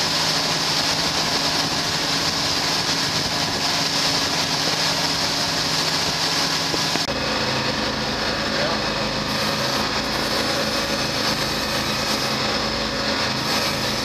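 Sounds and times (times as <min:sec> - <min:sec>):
rushing water: 0:00.0 - 0:07.1
boat engines running: 0:00.0 - 0:14.0
engine drone inside wheelhouse: 0:00.0 - 0:14.0
wind: 0:00.0 - 0:14.0.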